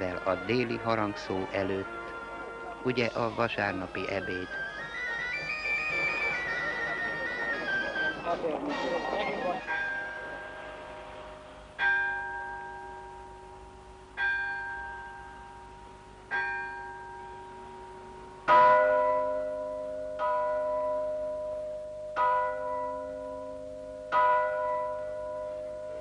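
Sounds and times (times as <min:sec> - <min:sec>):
church bells tolling: 0:09.6 - 0:26.0
deeper louder bell: 0:11.8 - 0:26.0.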